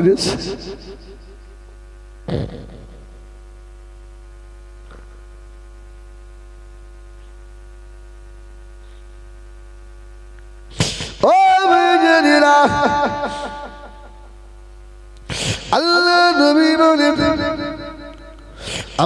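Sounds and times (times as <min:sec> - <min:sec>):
man wailing into a microphone: 0:00.0 - 0:01.4, 0:10.8 - 0:14.4, 0:15.3 - 0:19.0
electrical hum: 0:00.0 - 0:19.0.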